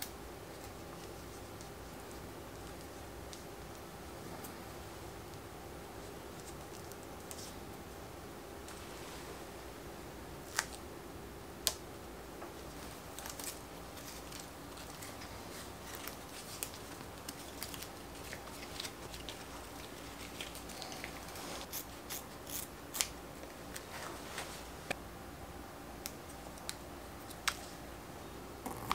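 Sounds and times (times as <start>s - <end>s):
tape being handled: 12.6s - 25.0s.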